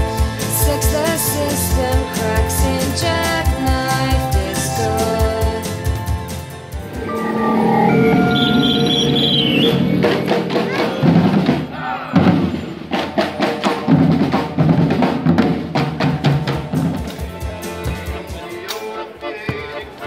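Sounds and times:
drums beaten with sticks: 9.8 - 18.6.

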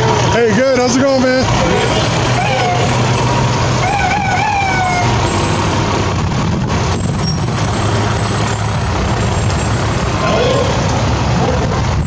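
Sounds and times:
diesel truck engine rumbling: 0.0 - 12.0
wavering siren tone: 1.8 - 5.6.

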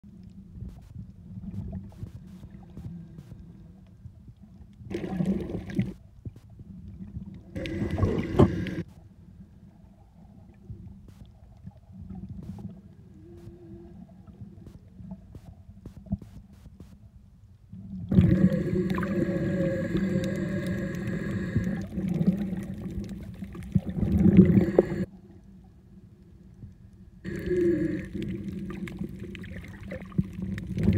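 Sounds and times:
underwater rumble of water: 0.0 - 30.9
bursts of water noise: 7.6 - 8.9, 18.1 - 25.1.

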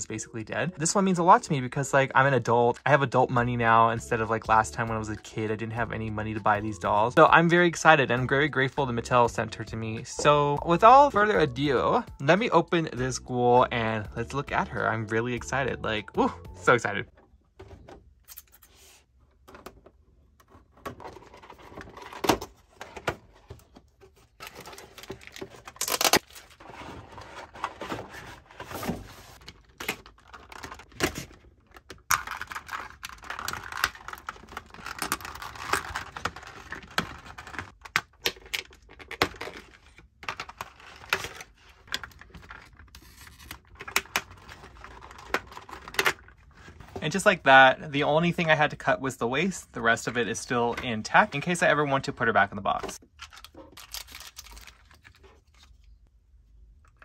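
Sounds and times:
plastic packaging crinkling: 24.1 - 37.8, 53.1 - 55.9.

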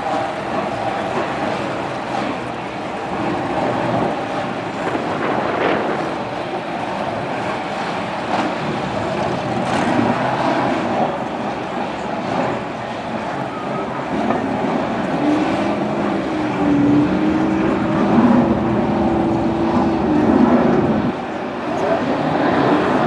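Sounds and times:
car engines idling: 0.0 - 23.0
tractor diesel engine: 8.6 - 23.0.

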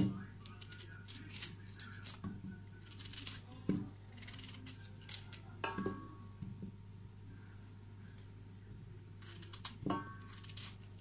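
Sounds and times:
knife cutting pumpkin: 9.2 - 11.0.

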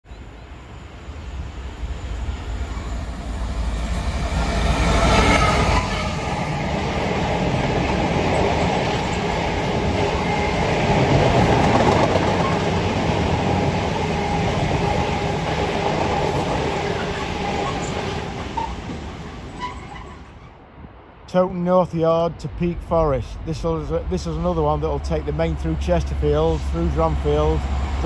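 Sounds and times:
diesel locomotive engine rumbling: 0.2 - 20.8, 21.7 - 28.0
train wheels clattering on rails: 7.5 - 20.2.

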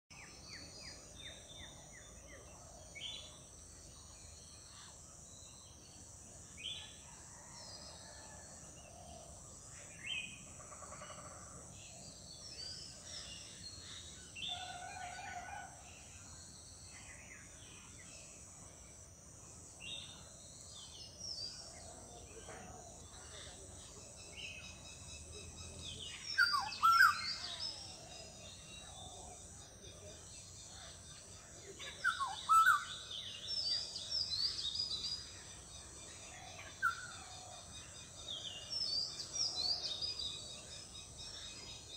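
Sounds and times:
golden oriole calling: 26.2 - 28.2, 31.8 - 35.0.

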